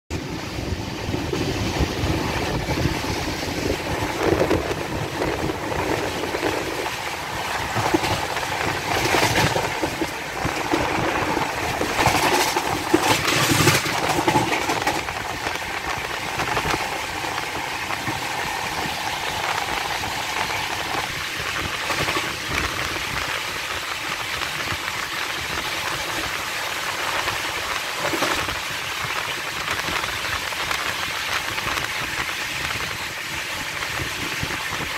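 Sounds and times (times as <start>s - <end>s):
rushing air: 0.1s - 34.9s
train wheels rumbling on rails: 0.1s - 34.9s.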